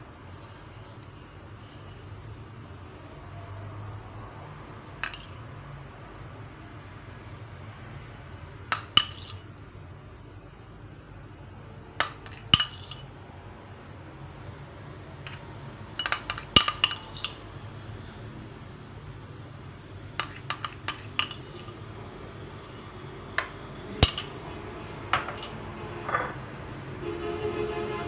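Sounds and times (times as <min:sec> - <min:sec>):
spoon clinking against dishes: 0:05.0 - 0:05.4, 0:08.7 - 0:09.4, 0:12.0 - 0:13.1, 0:16.0 - 0:17.4, 0:20.2 - 0:21.8, 0:24.0 - 0:24.4.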